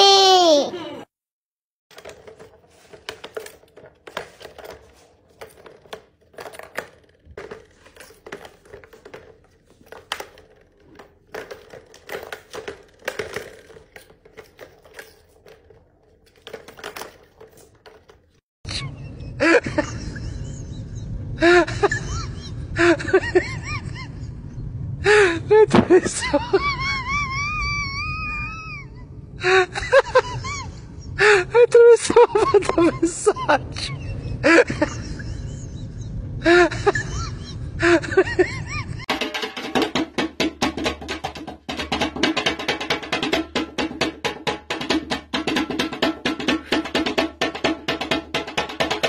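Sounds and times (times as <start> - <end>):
plastic toy balls clicking and rattling: 1.9 - 18.4.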